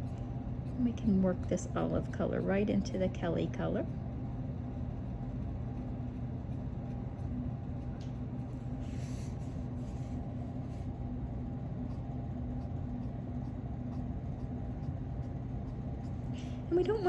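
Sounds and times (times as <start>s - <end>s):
low background hum: 0.0s - 17.0s
pencil scratching on paper: 4.7s - 10.9s.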